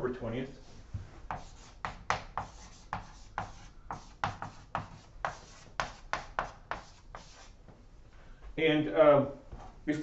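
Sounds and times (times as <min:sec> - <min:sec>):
chalk writing on a blackboard: 0:00.4 - 0:07.6.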